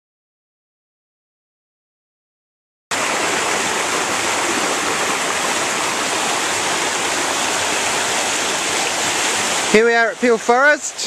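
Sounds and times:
river water rushing: 0:02.9 - 0:11.0.

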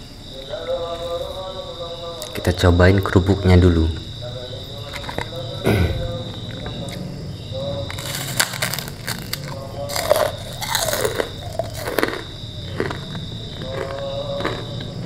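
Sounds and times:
crickets chirping: 0:00.0 - 0:15.0
cracker crunching: 0:04.6 - 0:15.0.

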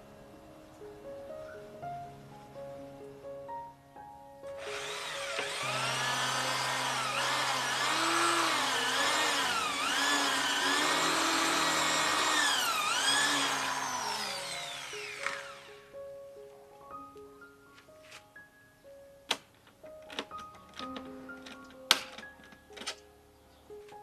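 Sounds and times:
handheld electric power tool: 0:04.6 - 0:15.9.

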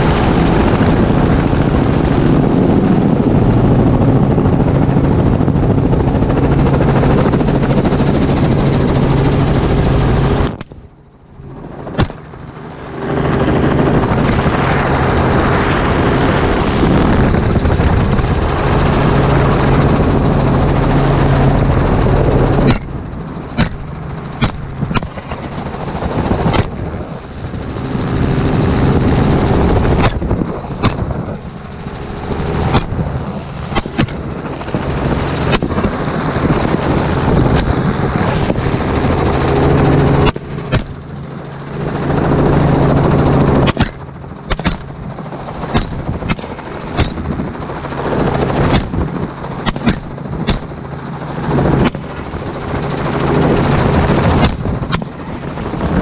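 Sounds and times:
helicopter engine and rotor: 0:00.0 - 0:56.0
rifle shots: 0:22.6 - 0:25.5, 0:33.7 - 0:34.2, 0:43.6 - 0:45.0, 0:45.7 - 0:47.4, 0:48.7 - 0:50.8.

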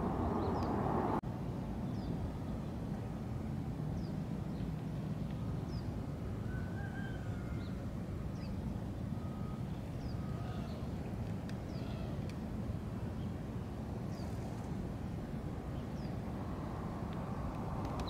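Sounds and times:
steady low rumble: 0:00.0 - 0:04.4, 0:10.8 - 0:18.0.

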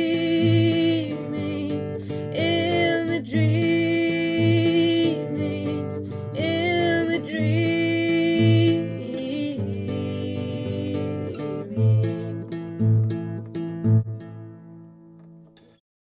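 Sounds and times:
guitar: 0:00.0 - 0:15.8.

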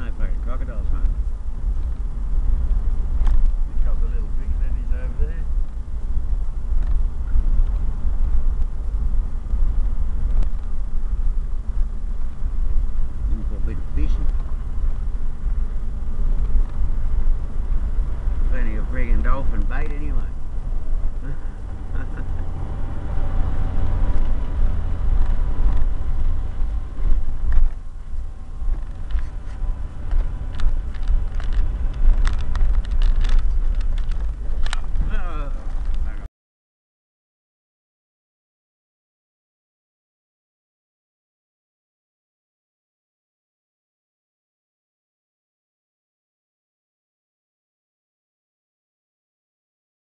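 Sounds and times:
vehicle engine and tyres rumbling: 0:00.0 - 0:36.3
knocks and rattles over bumps: 0:13.3 - 0:36.2.

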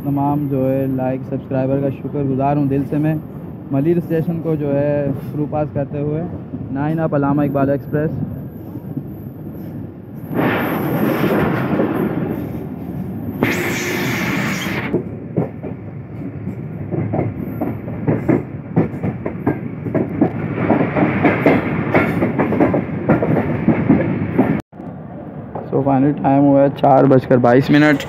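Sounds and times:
train wheels rumbling on track: 0:00.0 - 0:28.0
hissing rush: 0:13.4 - 0:15.0
wheels clacking over rail joints: 0:14.5 - 0:24.6.

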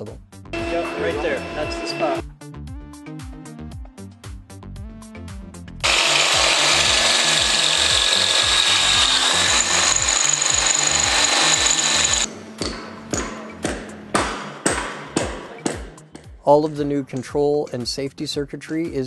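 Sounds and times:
background music with steady beat: 0:00.0 - 0:19.0
cordless drill running: 0:00.6 - 0:02.2, 0:05.8 - 0:12.3.

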